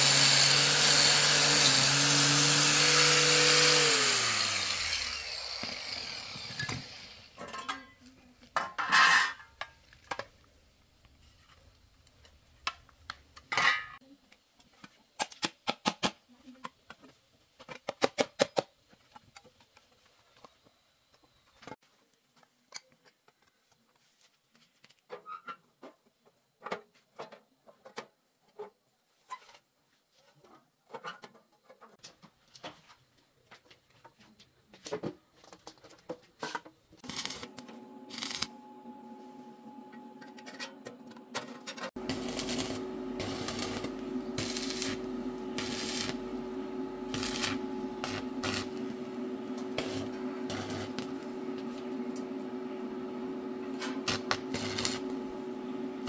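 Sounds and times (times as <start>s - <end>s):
welding machine hum: 0.0s - 7.3s, 37.0s - 56.0s
welding arc crackle: 37.0s - 38.6s, 42.0s - 52.3s, 53.7s - 55.6s.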